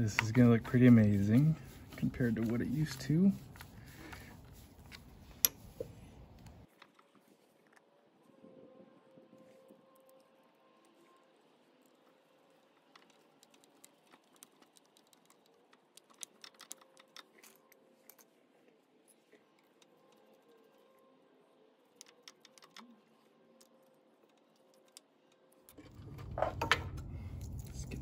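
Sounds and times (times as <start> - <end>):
low rumbling handling noise: 25.8 - 28.0.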